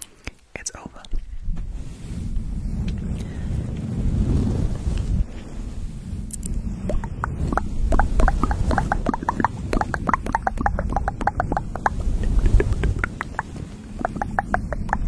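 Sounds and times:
low rumble: 1.2 - 15.0.

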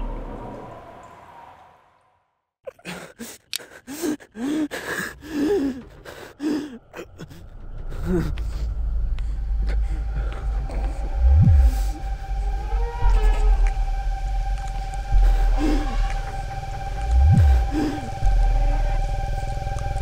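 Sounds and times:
low rumble: 5.2 - 20.0.

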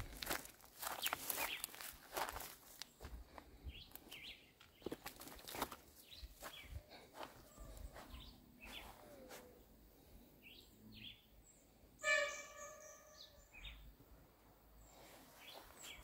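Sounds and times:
footsteps through grass: 0.0 - 9.6, 14.9 - 16.0
bird chirps: 0.9 - 1.8, 6.0 - 9.6, 10.4 - 13.9, 14.8 - 16.0.

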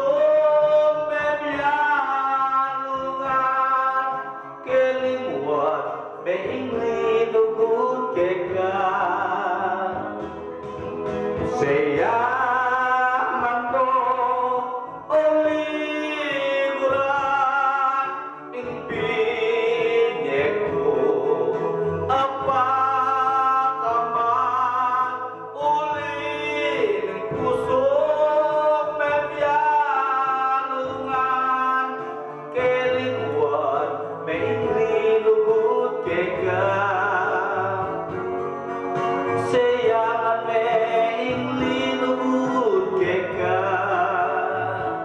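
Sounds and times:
backing music: 0.0 - 45.0
man singing into a microphone: 0.0 - 45.0.

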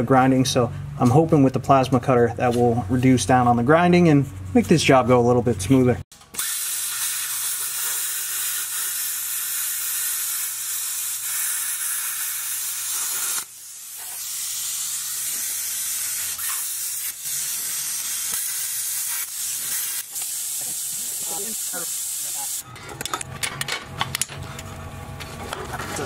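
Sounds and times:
plasma cutter hissing: 6.4 - 22.6.

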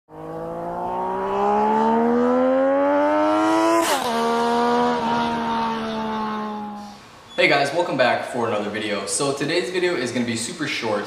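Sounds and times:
motorcycle engine revving: 0.1 - 7.0.

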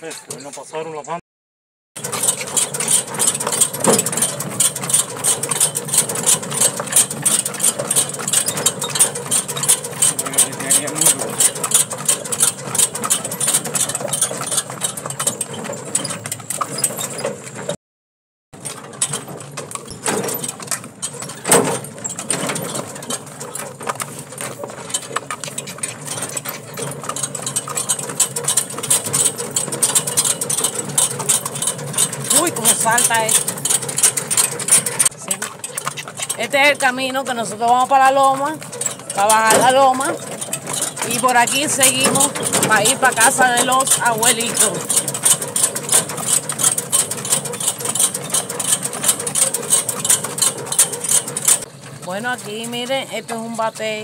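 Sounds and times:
cart wheels crunching on gravel: 2.0 - 17.8, 18.6 - 54.0
horse hoofbeats: 2.0 - 17.8, 18.6 - 54.0
brief rising squeak: 15.2 - 17.8.

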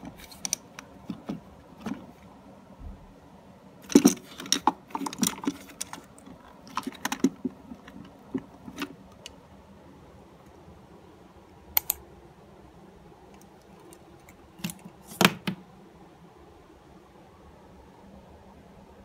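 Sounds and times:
plastic pens clattering in a cup: 3.9 - 8.9.

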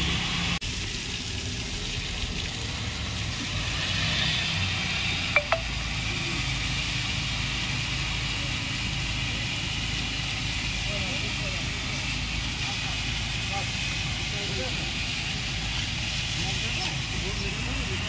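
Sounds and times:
hose nozzle spraying water: 0.0 - 18.0.

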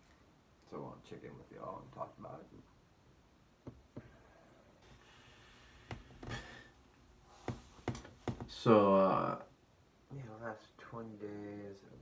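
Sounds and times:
person breathing and sniffing: 4.8 - 7.6.

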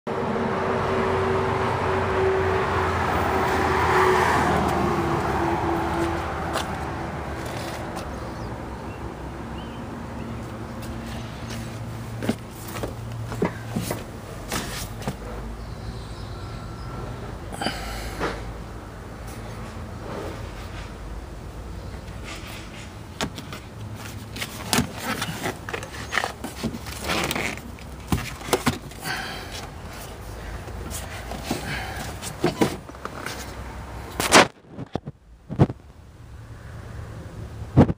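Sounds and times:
vehicle engine drone: 0.1 - 37.9
sun visor scraping: 11.2 - 15.3, 23.2 - 29.0, 30.8 - 33.6.

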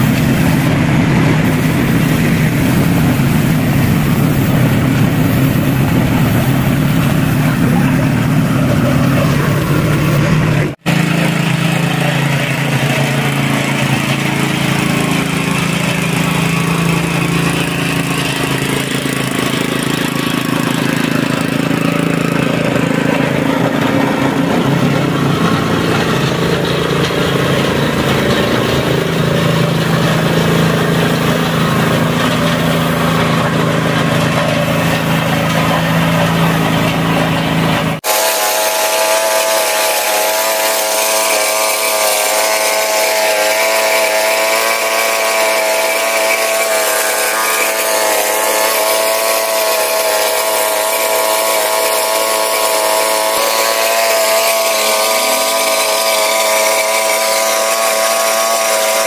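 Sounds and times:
high steady whine: 0.0 - 43.5
small petrol engine running: 0.0 - 59.0.

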